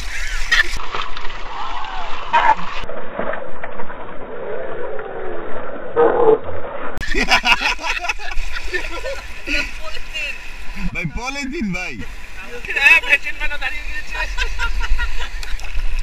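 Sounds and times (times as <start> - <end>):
water splashing: 0.0 - 16.0
people's voices: 7.0 - 15.6.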